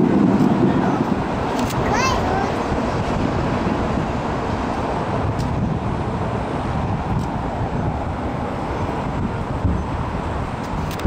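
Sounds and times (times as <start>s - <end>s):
outdoor background rumble: 0.0s - 11.0s.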